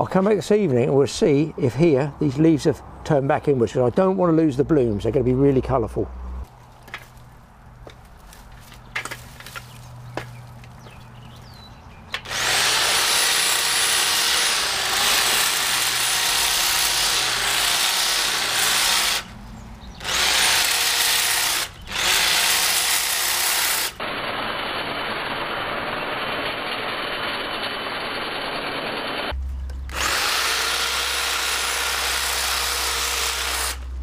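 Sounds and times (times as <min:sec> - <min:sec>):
electric hedge trimmer cutting: 0:12.2 - 0:19.3, 0:20.0 - 0:33.9.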